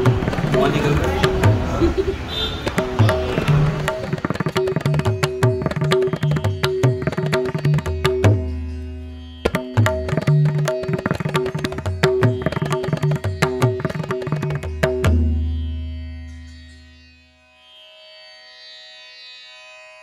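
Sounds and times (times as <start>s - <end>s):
music with fast percussion beat: 0.0s - 8.7s, 9.4s - 15.6s.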